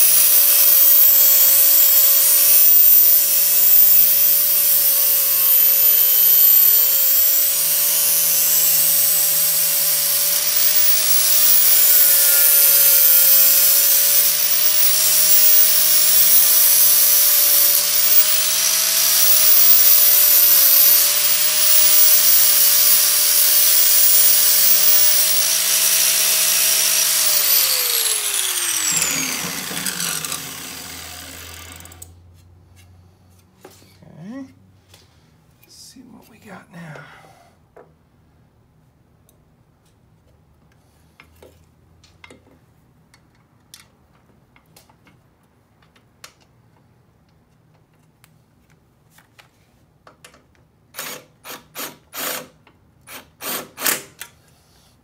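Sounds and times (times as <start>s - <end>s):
grinder winding down whine: 0.0s - 32.1s
power grinder grinding metal: 0.0s - 32.1s.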